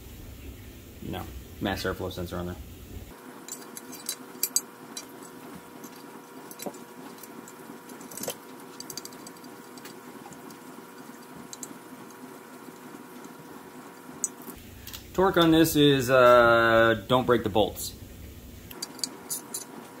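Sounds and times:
metal tube clicking and clinking: 3.4 - 10.6, 11.4 - 11.8, 14.2 - 14.6, 18.7 - 19.8.

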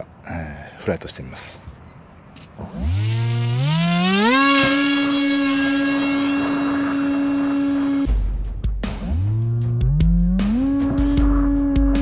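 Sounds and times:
model airplane motor whine: 2.6 - 8.1.

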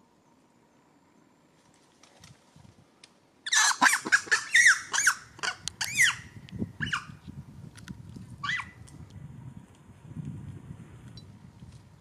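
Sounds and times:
monkey squealing and screaming: 3.5 - 6.2, 6.8 - 7.1, 8.4 - 8.8.

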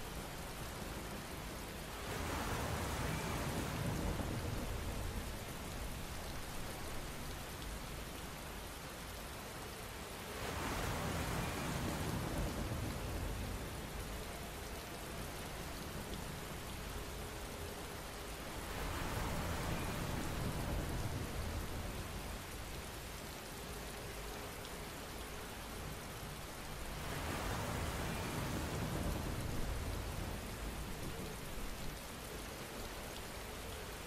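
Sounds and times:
steady rain falling: 0.0 - 34.0.

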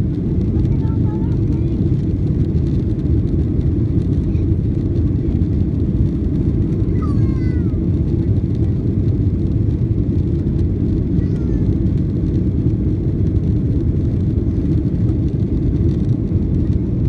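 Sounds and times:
jet engines roaring: 0.0 - 17.0.

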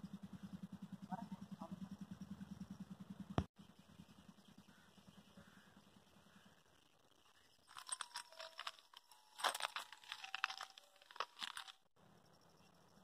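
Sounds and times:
close rustling and crunching: 7.6 - 11.9.

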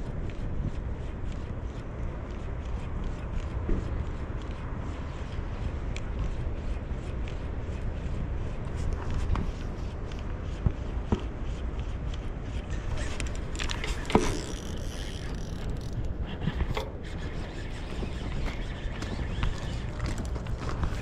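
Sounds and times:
wind rumble on microphone: 0.0 - 21.0
fishing reel clicks and scrapes: 12.6 - 21.0.

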